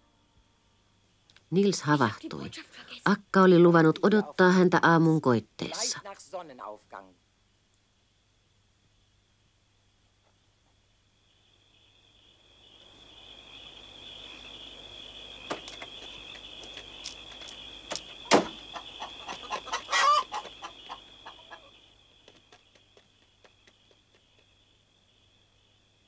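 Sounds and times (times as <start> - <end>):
hens clucking: 15.4 - 24.5
sharp knock: 18.3 - 18.6.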